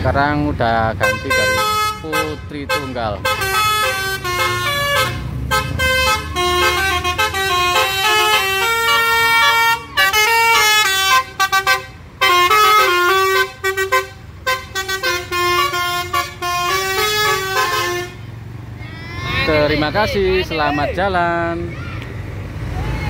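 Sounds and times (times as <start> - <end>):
bus engine running: 0.0 - 23.0
multi-tone air horn melody: 1.0 - 18.2.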